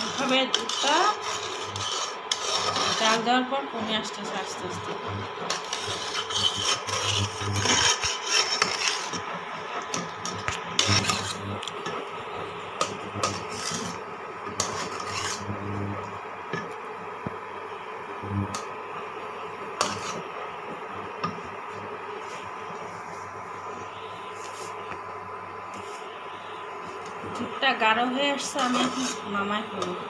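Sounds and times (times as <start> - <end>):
metal spatula scraping a pan: 0.0 - 12.0, 12.8 - 15.9, 19.8 - 20.3, 27.4 - 30.0
milk boiling hiss: 0.0 - 30.0.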